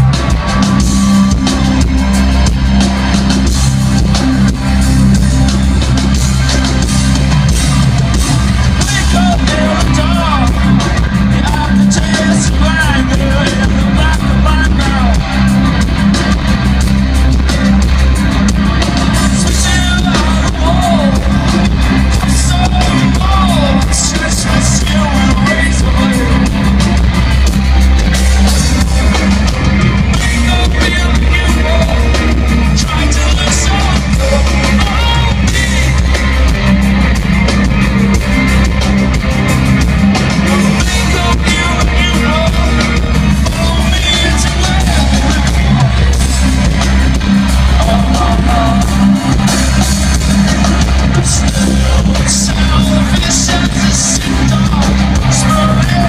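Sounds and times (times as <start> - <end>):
drums: 0.0 - 56.0
electric guitar: 0.0 - 56.0
keyboards: 0.0 - 56.0
person singing: 8.7 - 16.3, 19.1 - 27.8, 29.9 - 36.7, 40.2 - 49.8, 50.4 - 56.0.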